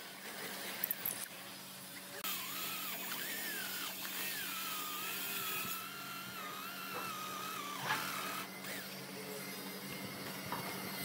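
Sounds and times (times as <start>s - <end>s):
tool cutting spinning wood: 2.2s - 9.1s
lathe motor hum: 2.2s - 9.2s.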